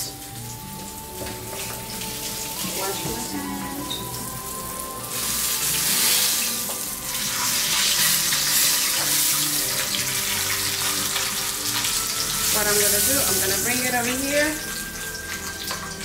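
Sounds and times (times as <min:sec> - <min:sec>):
meat sizzling in oil: 0:00.0 - 0:16.0.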